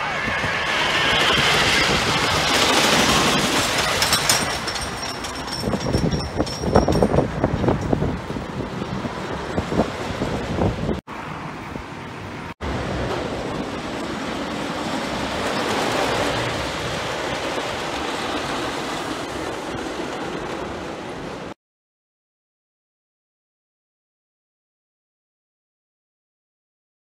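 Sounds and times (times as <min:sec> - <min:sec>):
roller coaster rattling on wooden track: 0:00.6 - 0:10.4, 0:12.8 - 0:21.5.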